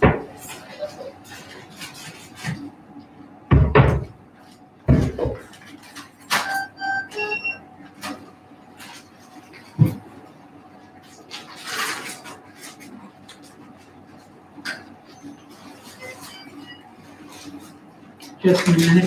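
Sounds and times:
electronic beeps: 0:06.4 - 0:07.6.

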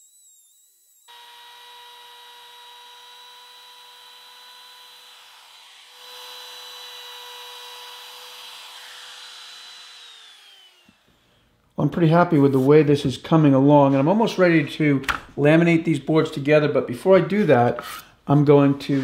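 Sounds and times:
router whining while cutting wood: 0:00.0 - 0:11.2.

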